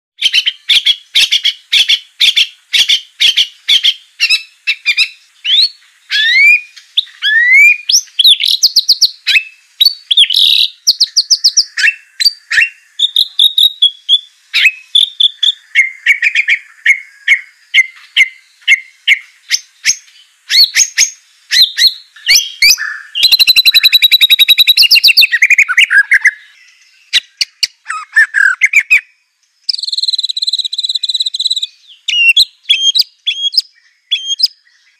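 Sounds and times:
songbird singing: 0.2 - 34.9.

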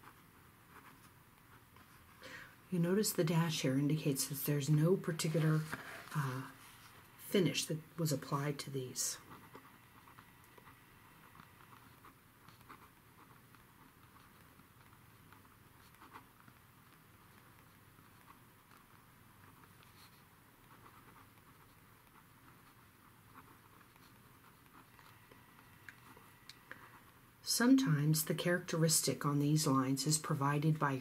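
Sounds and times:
pen writing on paper: 9.2 - 25.2.

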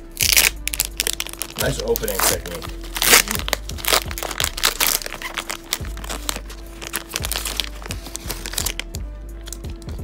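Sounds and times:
foil wrapper crinkling: 0.2 - 9.8.

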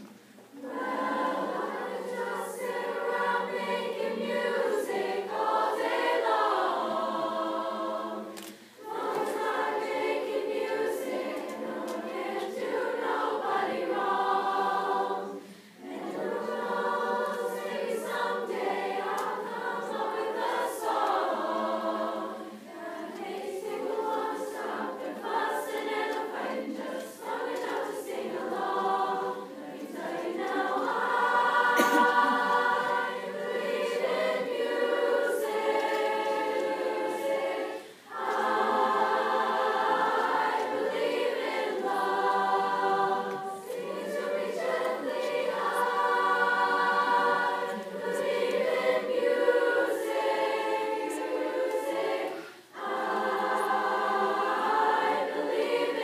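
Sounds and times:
chorus singing: 0.0 - 56.0.

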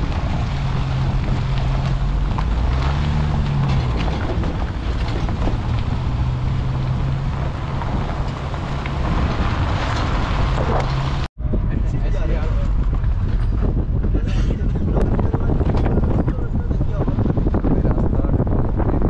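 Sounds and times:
car engine humming: 0.0 - 11.3
road and wind noise: 0.0 - 19.0.

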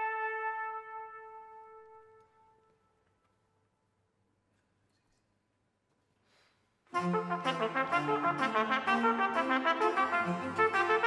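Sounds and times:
trumpet note echo: 0.0 - 2.7, 6.9 - 11.0.

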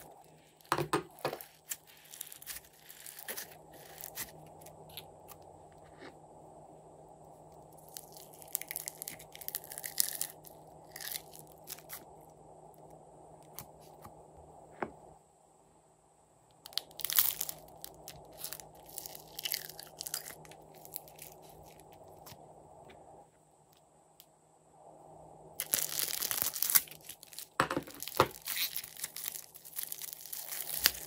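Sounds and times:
foam beads crackling: 0.0 - 5.1, 7.8 - 12.0, 16.7 - 22.4, 25.6 - 31.0.

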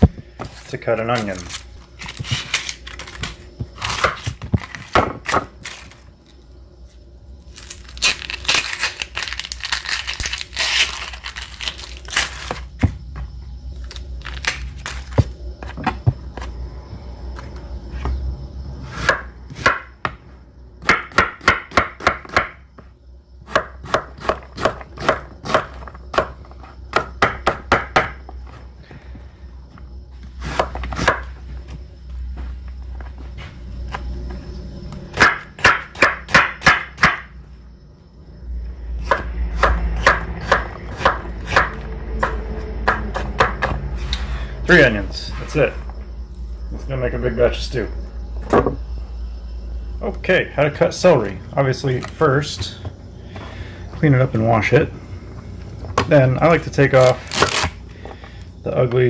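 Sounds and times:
knife chopping on wooden board: 19.0 - 20.2, 20.8 - 22.6, 23.5 - 28.2, 35.1 - 37.3, 39.0 - 43.8.

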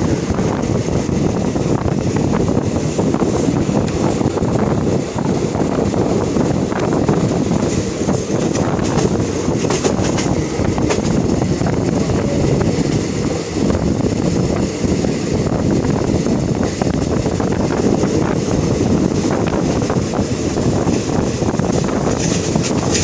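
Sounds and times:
train wheels rumbling on rails: 0.0 - 23.0
wind noise on microphone: 0.0 - 23.0.

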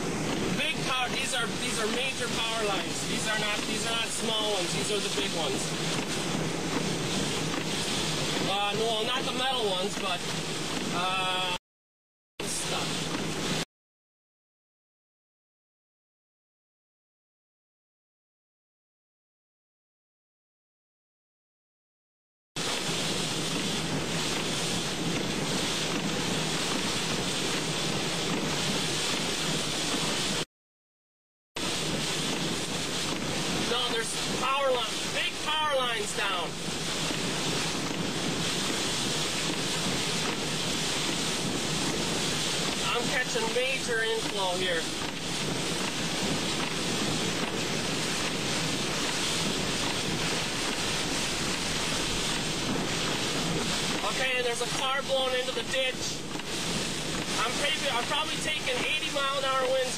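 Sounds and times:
rain hitting a vehicle: 0.0 - 11.6, 12.4 - 13.6, 22.6 - 30.5, 31.6 - 59.9
storm wind: 0.0 - 11.6, 22.6 - 30.4, 31.6 - 59.9.

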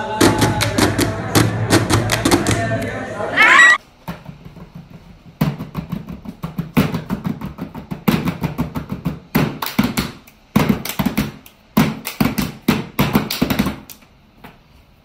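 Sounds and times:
hands slapping padded board: 4.1 - 14.0.

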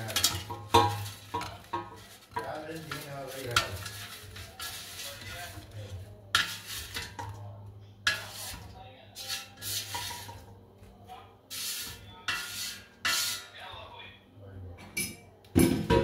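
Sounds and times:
potatoes clattering into dish: 0.0 - 7.4
spatula scraping fryer basket: 0.0 - 7.4, 8.0 - 10.5, 11.5 - 13.6.

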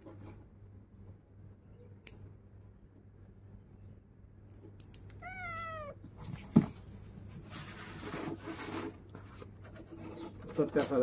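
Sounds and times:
cat meowing: 5.1 - 6.1.

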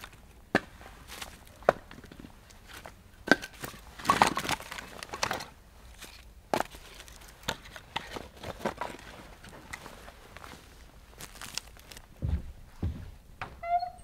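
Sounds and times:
firewood pieces knocking together: 0.0 - 9.0.

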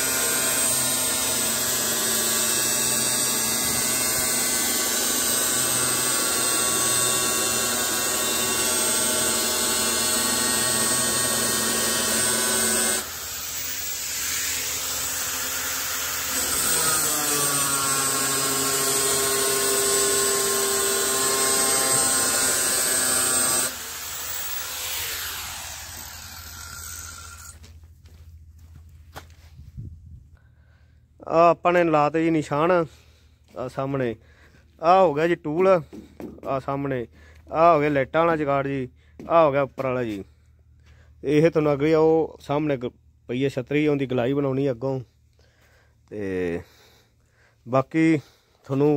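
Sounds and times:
angle grinder cutting steel: 0.0 - 27.6.

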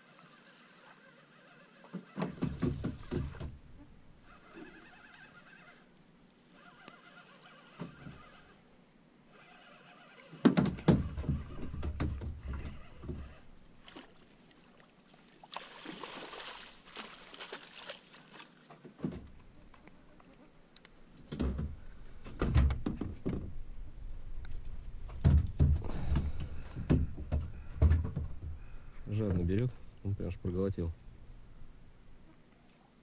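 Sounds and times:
knocks and thumps in boat: 2.0 - 3.6, 10.4 - 13.4, 21.2 - 23.6, 25.0 - 28.7.

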